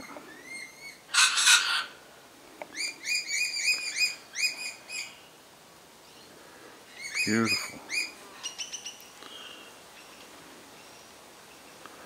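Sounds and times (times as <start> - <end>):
parrot harsh screech: 1.1 - 1.9.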